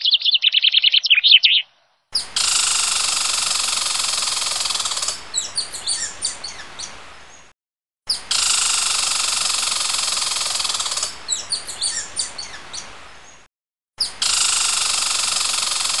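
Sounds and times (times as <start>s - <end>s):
high falling animal chirps: 0.0s - 2.3s.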